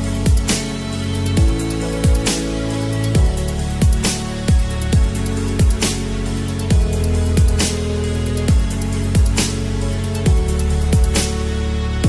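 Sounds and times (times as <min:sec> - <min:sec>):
electronic music with heavy beat: 0:00.0 - 0:12.0.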